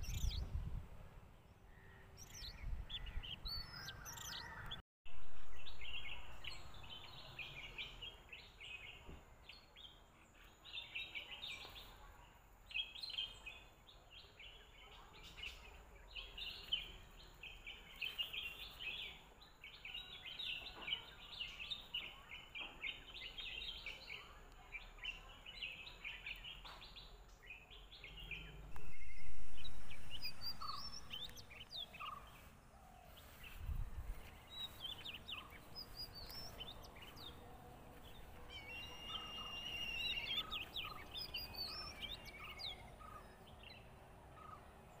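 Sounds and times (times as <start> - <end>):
birds chirping and calling: 0.0 - 0.4, 1.7 - 4.8, 14.4 - 44.7
sudden loud rush of noise: 28.6 - 31.3.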